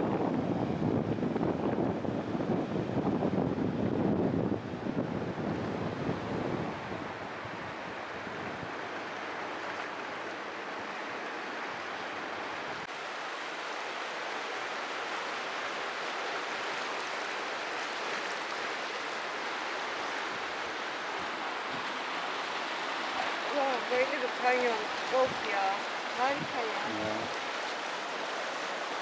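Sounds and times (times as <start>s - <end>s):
river rapids rushing: 6.0s - 29.0s.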